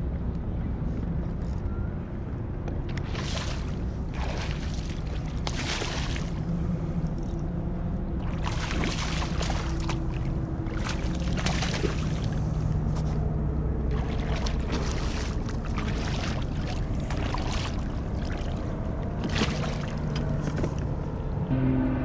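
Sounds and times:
steady low hum: 0.0s - 22.0s
fish splashing in water: 2.9s - 6.5s, 8.2s - 12.6s, 13.9s - 20.8s.

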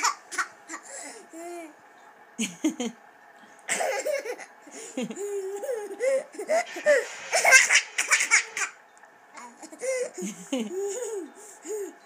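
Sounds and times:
young child laughing: 3.7s - 8.8s, 9.4s - 12.0s.

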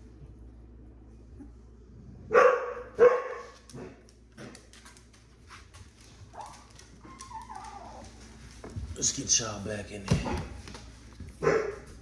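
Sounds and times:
dog barking: 2.3s - 4.0s, 11.4s - 11.9s.

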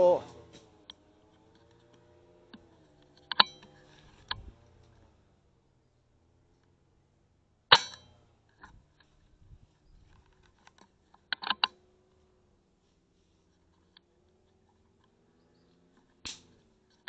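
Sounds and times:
quick clicks: 10.1s - 11.8s, 15.0s - 17.0s.

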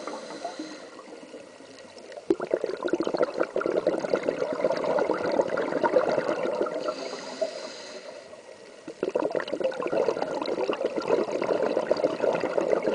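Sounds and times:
regulator inhale hiss: 0.0s - 1.3s, 6.8s - 8.9s
exhaled bubbles gurgling underwater: 0.0s - 12.9s.

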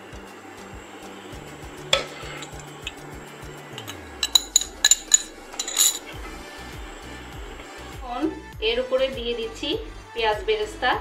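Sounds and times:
soft background music: 0.0s - 11.0s
pot lid clinking against pot: 3.7s - 6.1s.

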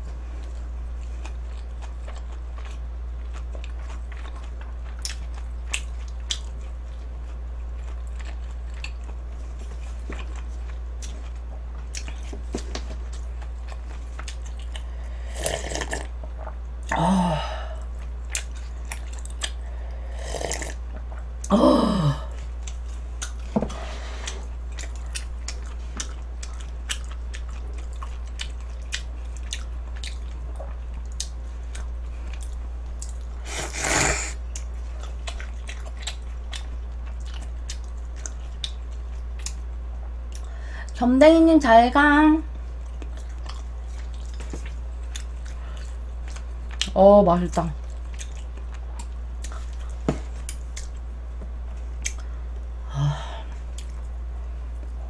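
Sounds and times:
slurping broth: 15.3s - 16.0s, 33.4s - 34.4s
chewing and biting noodles: 24.7s - 39.6s.

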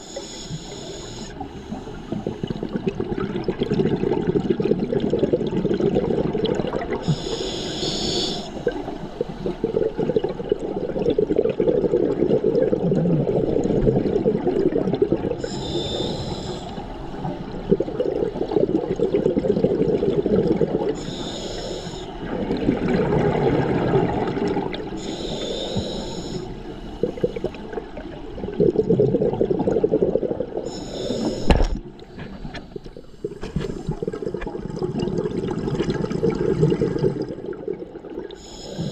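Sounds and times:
regulator inhalation hiss: 0.0s - 2.4s, 7.0s - 9.4s, 15.4s - 16.9s, 21.0s - 22.2s, 25.0s - 27.5s, 30.7s - 31.7s, 38.4s - 38.9s
bubbling exhalations: 2.1s - 7.4s, 8.2s - 16.0s, 17.6s - 21.0s, 22.2s - 25.0s, 27.0s - 38.9s.

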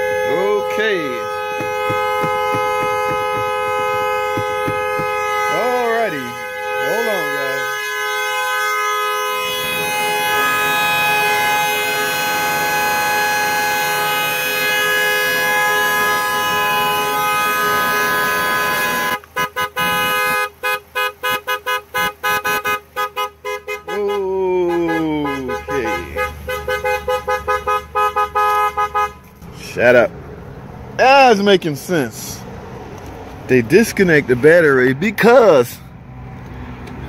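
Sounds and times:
two-tone car horn blaring: 0.0s - 29.3s.

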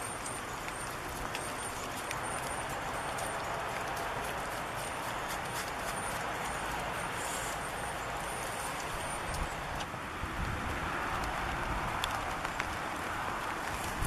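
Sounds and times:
light drips: 0.0s - 9.9s
steady rain: 0.0s - 14.0s
wind rumble on microphone: 8.8s - 14.0s.

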